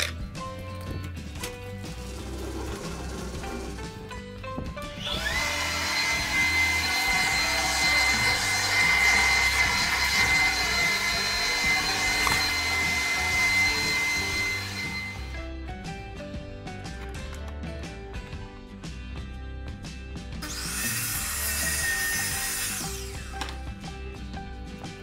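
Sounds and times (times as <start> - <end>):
shop vacuum running: 1.8 - 4.1, 4.8 - 15.4, 20.4 - 23.6.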